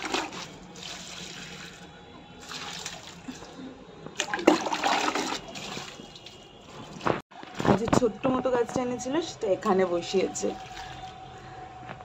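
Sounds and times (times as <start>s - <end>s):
mug scooping water splashing: 0.0s - 7.2s, 9.9s - 11.5s.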